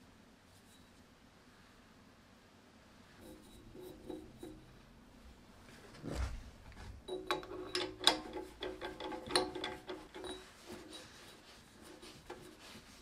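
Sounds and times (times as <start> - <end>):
light metal taps and clinks: 7.1 - 11.0.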